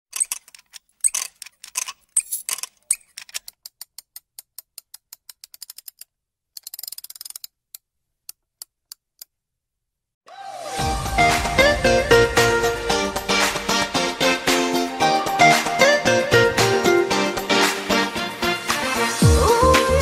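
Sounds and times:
mechanical clicks and ticks: 0.1 - 9.3.

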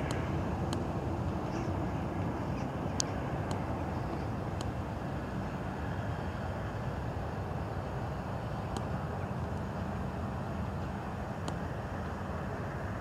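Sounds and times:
faint high ticks: 0.0 - 1.4, 2.6 - 3.7, 8.7 - 9.7, 10.6 - 12.2
distant jet engines rumbling: 0.0 - 13.0.

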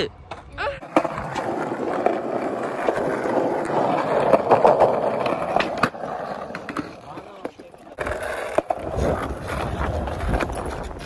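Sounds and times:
skateboard wheels rolling on asphalt: 0.1 - 11.0.

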